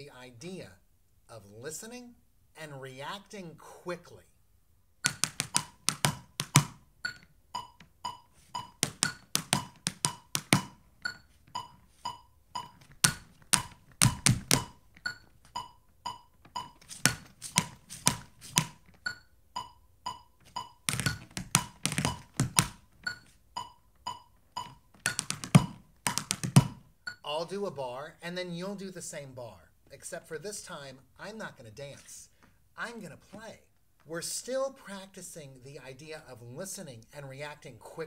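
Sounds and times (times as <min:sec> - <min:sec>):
tap shoes on wooden board: 0:05.0 - 0:06.8, 0:08.5 - 0:10.8, 0:12.6 - 0:14.8, 0:16.6 - 0:19.0, 0:20.4 - 0:22.8, 0:24.6 - 0:26.8
light ticking beat: 0:05.0 - 0:27.2.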